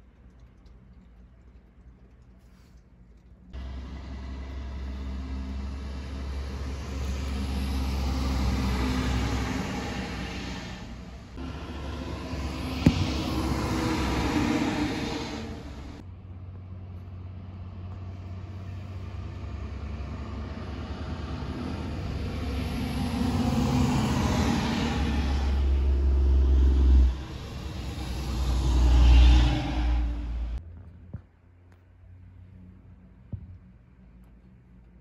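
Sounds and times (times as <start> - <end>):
diesel trucks driving past: 3.5 - 30.8.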